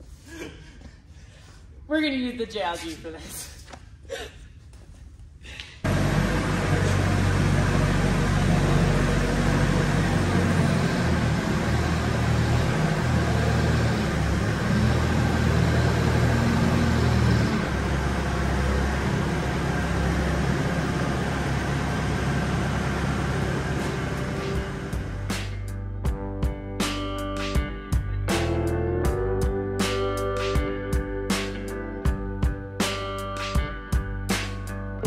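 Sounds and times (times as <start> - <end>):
telehandler engine running: 5.9 - 25.7.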